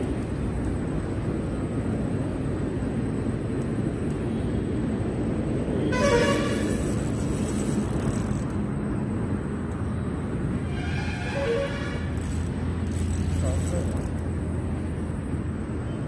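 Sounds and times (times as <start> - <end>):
vehicle horn: 5.8 - 6.8, 10.7 - 12.2.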